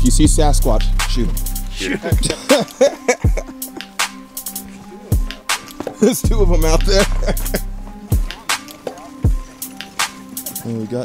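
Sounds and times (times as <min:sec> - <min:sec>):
deep bass hit: 0:06.3 - 0:07.8.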